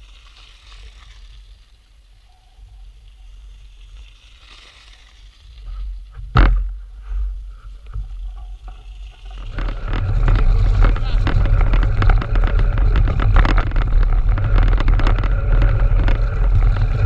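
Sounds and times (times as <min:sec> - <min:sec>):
wind rumble on microphone: 0:05.2 - 0:17.0.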